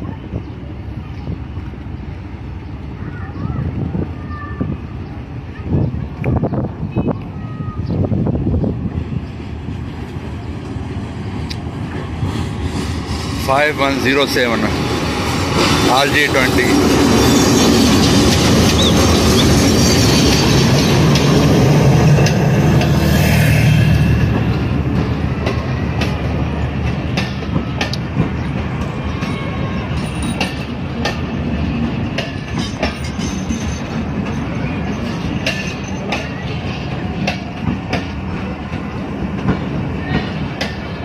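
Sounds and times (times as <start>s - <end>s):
diesel locomotive engine: 0.0s - 41.0s
train wheels clacking on rails: 11.4s - 41.0s.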